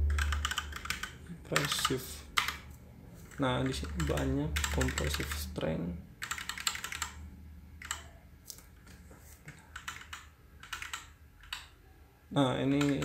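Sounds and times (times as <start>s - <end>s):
low steady hum: 0.0s - 13.0s
computer keyboard clicks: 0.1s - 2.7s, 3.6s - 5.4s, 6.2s - 7.2s, 7.8s - 8.7s, 9.7s - 11.7s.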